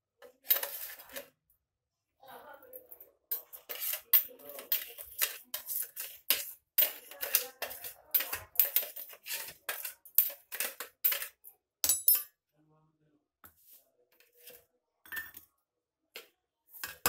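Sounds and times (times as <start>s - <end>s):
steel spoon scraping a plate: 0.2s - 1.3s, 3.3s - 12.1s, 16.8s - 17.0s.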